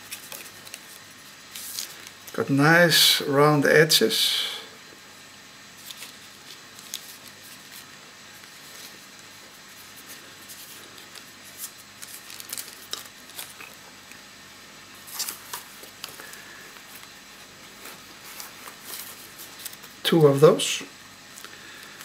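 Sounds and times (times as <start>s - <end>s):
paper and fabric filters rustling: 15.0s - 20.0s.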